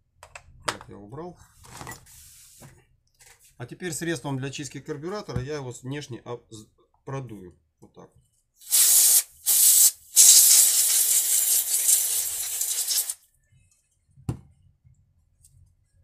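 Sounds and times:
aerosol spray hissing: 0:08.6 - 0:13.2.

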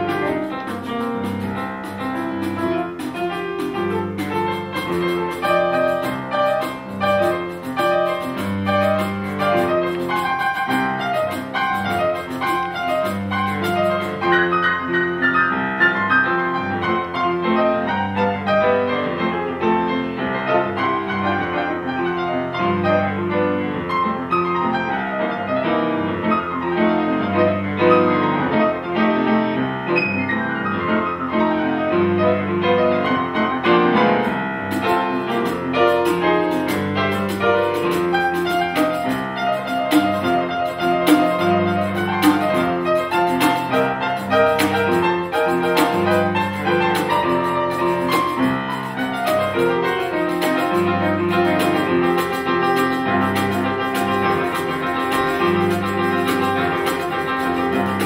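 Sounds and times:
fast crisp high ticking: 0:00.0 - 0:15.2, 0:34.1 - 0:58.0
jazz piano: 0:00.0 - 0:58.0.

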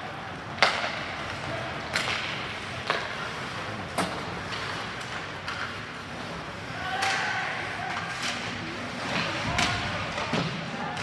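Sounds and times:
hockey sticks cracking on puck: 0:00.4 - 0:11.0.

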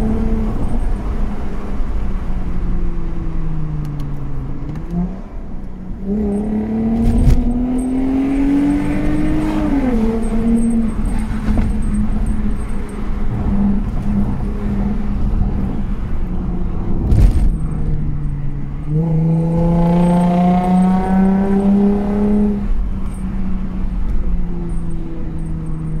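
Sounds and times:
car engine revving: 0:04.7 - 0:23.2.

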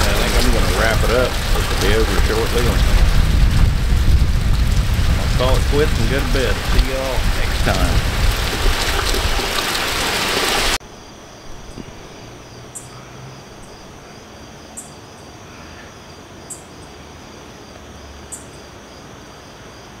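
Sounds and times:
night insects trilling: 0:00.0 - 0:10.0, 0:10.8 - 0:20.0
steady rain falling: 0:00.0 - 0:10.8.

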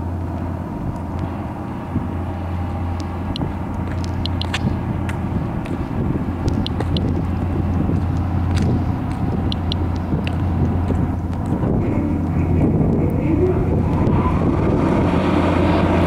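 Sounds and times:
steady low hum: 0:00.0 - 0:16.0
geiger counter clicking: 0:03.3 - 0:04.7, 0:06.4 - 0:07.3, 0:08.1 - 0:10.8.

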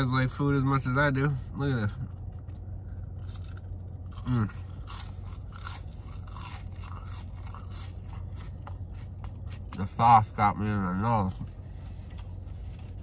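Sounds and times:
crunchy chewing: 0:02.1 - 0:10.0.

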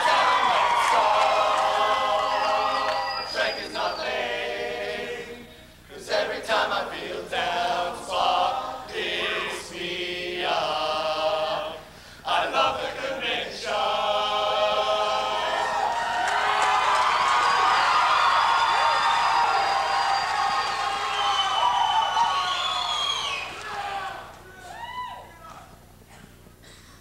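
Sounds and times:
men singing in chorus: 0:00.0 - 0:15.9.

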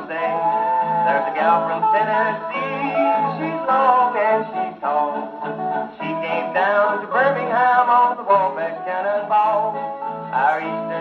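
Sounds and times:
string-band record on phonograph: 0:00.0 - 0:11.0.

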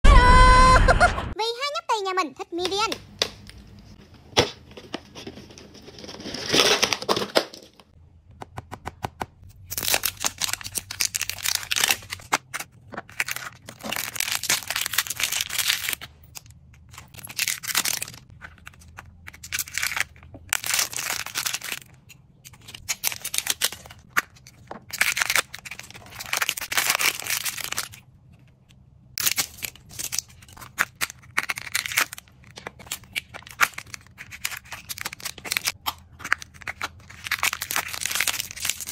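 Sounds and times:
plastic wrappers crinkling and tearing: 0:04.8 - 0:07.9, 0:09.5 - 0:28.5, 0:29.2 - 0:38.9.

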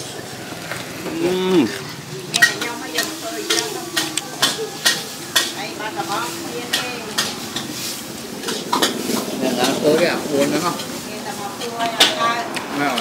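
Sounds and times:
noodles sizzling: 0:00.0 - 0:13.0
spatula scraping a wok: 0:01.6 - 0:11.8.

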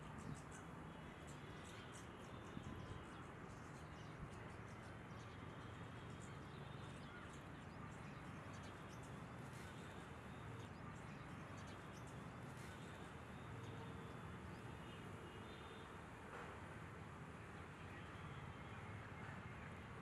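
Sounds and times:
small birds chirping: 0:00.0 - 0:15.8.

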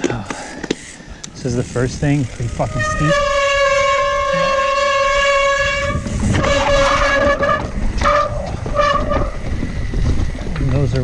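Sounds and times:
bike brakes squealing: 0:02.6 - 0:09.4.

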